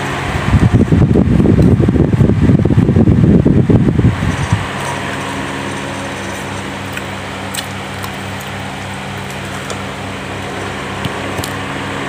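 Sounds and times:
pulsing machine hum: 0:00.0 - 0:12.0.

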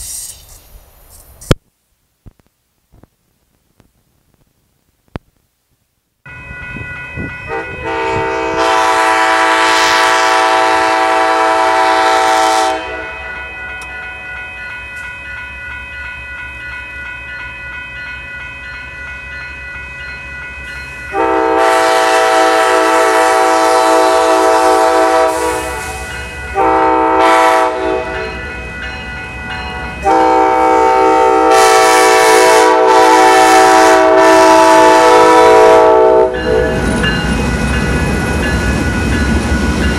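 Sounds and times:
steady ringing bell: 0:06.3 - 0:08.2, 0:13.0 - 0:21.6, 0:25.6 - 0:27.0, 0:28.0 - 0:30.2, 0:36.3 - 0:39.9
train rumble: 0:06.3 - 0:39.9
locomotive air horn blasts: 0:07.5 - 0:13.4, 0:21.1 - 0:28.3, 0:30.0 - 0:36.8.

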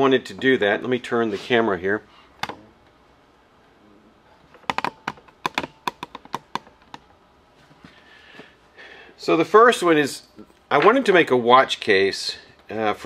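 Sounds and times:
sharp clicks of hard objects: 0:04.5 - 0:07.2.

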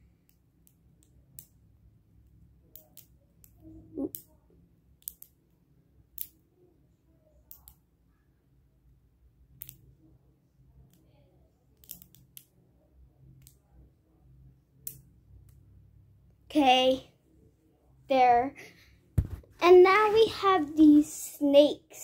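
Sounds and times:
plastic fidget chain clicking: 0:11.8 - 0:12.4.

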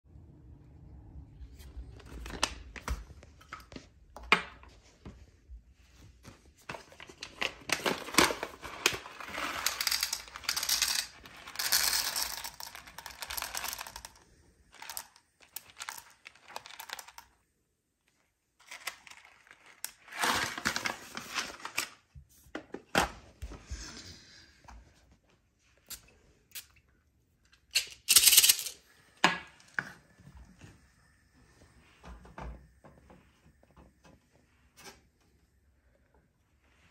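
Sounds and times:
coffee beans pouring into plastic cup: 0:08.0 - 0:17.3, 0:28.1 - 0:28.7.

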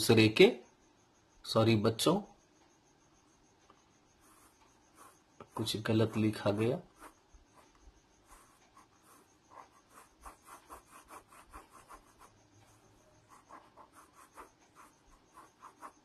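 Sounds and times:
pen scribbling on paper: 0:04.2 - 0:16.0.

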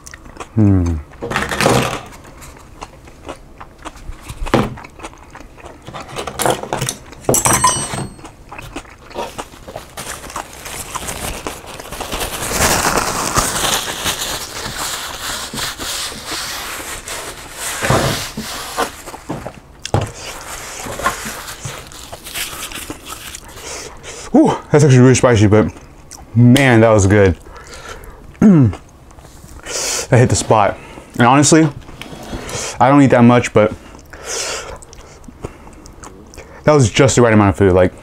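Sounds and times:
tableware clicks and scrapes: 0:06.0 - 0:08.3
paper napkin rustling: 0:09.7 - 0:19.4, 0:20.1 - 0:23.6.

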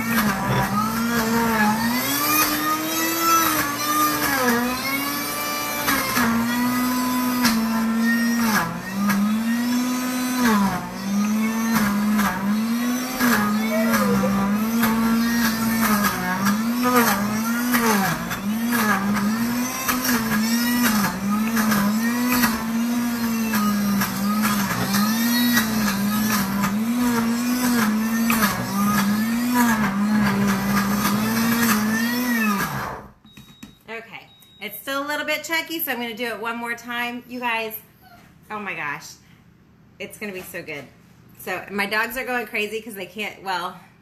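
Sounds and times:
blender motor running: 0:00.0 - 0:33.2.

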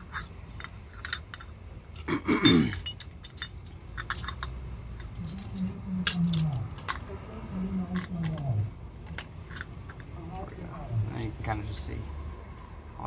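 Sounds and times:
metal clinks and rattles: 0:00.0 - 0:07.2, 0:07.8 - 0:10.5.

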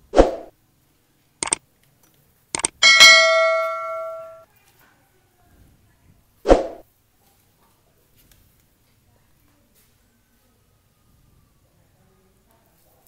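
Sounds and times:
mouse clicks: 0:02.6 - 0:02.8
notification bell ding: 0:02.8 - 0:04.4.

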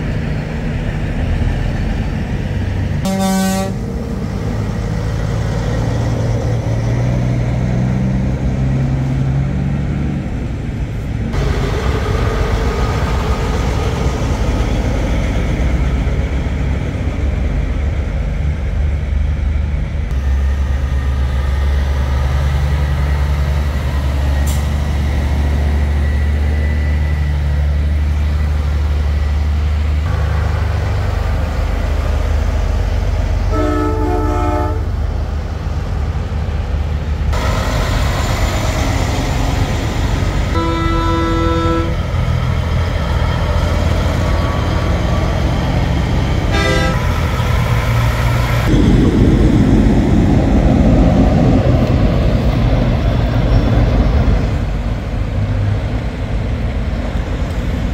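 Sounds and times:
truck diesel engines: 0:00.0 - 0:57.9
truck horn: 0:03.0 - 0:03.9, 0:33.5 - 0:35.0, 0:40.5 - 0:42.3, 0:46.5 - 0:47.3.

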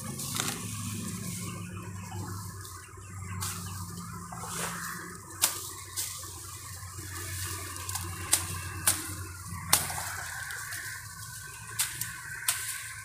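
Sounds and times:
grass rustling: 0:00.0 - 0:13.0
steady rushing noise: 0:00.0 - 0:13.0
sickle snapping through stems: 0:00.3 - 0:00.7, 0:05.4 - 0:06.2, 0:07.6 - 0:13.0.

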